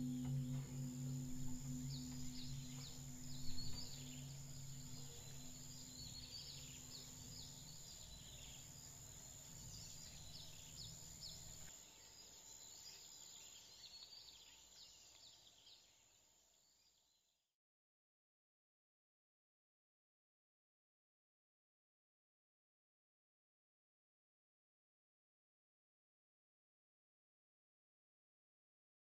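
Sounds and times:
low steady music drone: 0.0 - 13.9
birds chirping and trilling: 0.0 - 16.2.

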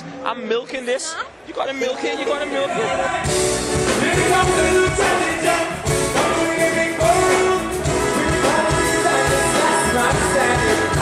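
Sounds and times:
live band playing: 2.2 - 11.0
man singing lead vocal: 2.6 - 11.0.

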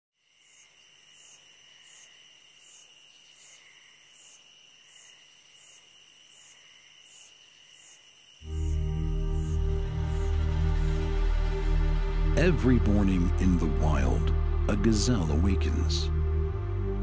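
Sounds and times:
insects trilling: 0.2 - 11.6
insect chirping: 0.2 - 12.3.

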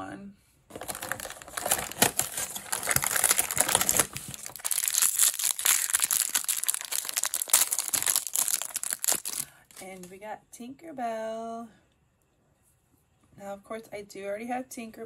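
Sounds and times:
plastic packet crinkling and tearing: 0.7 - 10.0.

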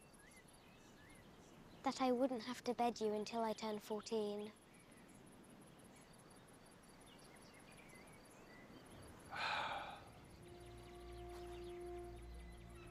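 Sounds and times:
crickets chirping: 0.0 - 12.9
bird chirps: 5.8 - 12.9
short breathy sound: 9.3 - 10.2
low drone: 9.4 - 12.9
held musical note: 10.2 - 12.9.

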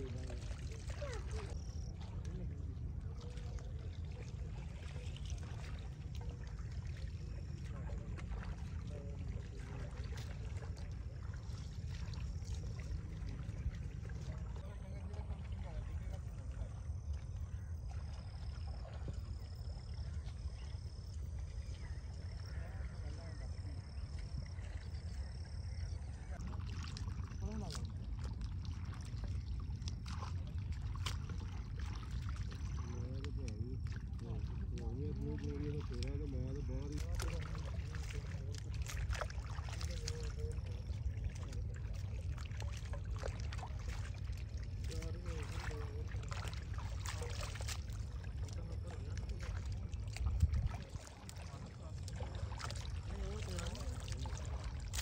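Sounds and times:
pond water sloshing: 0.0 - 55.0
small splashes and drips: 0.0 - 55.0
wind rumbling on microphone: 0.0 - 55.0
faint chirps: 14.5 - 26.4.

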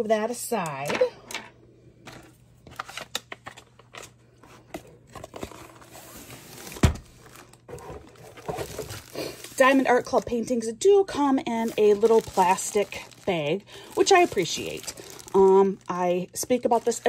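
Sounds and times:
plastic sleeve crinkling: 5.3 - 17.0.

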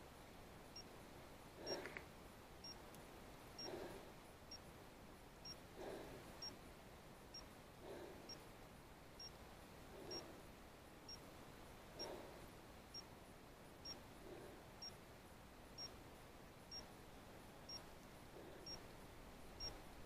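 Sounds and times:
soft breathing: 1.5 - 2.8, 3.5 - 6.7, 7.3 - 8.6, 9.2 - 11.2, 11.9 - 13.1, 13.9 - 15.0, 16.7 - 20.0.

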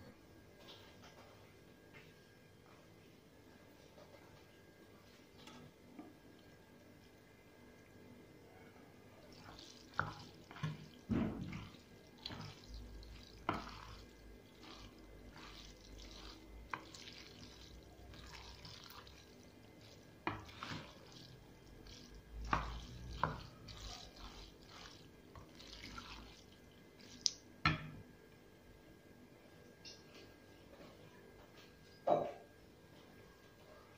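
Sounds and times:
water splashing in sink: 9.2 - 27.8.

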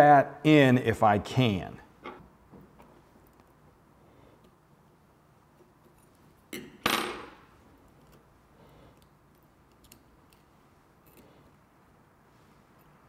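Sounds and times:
small clicks of parts handled: 2.0 - 3.6, 8.9 - 11.3.

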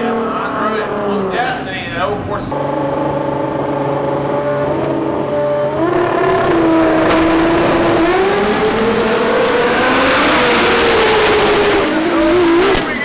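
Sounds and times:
drag car engines revving: 0.0 - 13.0
thin high whine: 6.4 - 10.0.

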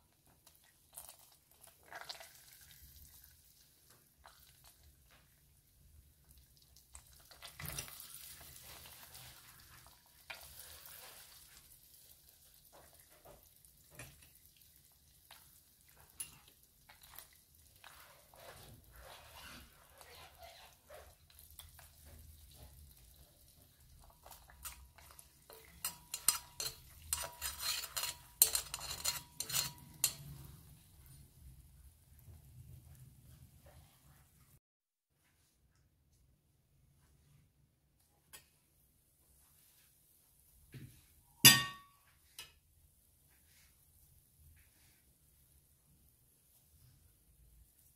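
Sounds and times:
spoon clinking in metal bowl: 24.2 - 30.4, 41.4 - 42.6.

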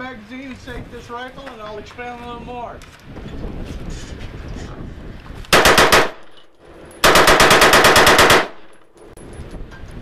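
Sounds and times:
rifle firing rapid bursts: 5.5 - 6.2, 7.0 - 8.7.

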